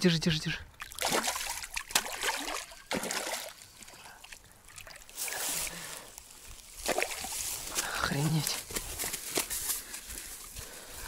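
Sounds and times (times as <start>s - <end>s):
fish thrashing and splashing: 0.8s - 5.8s, 6.7s - 7.4s.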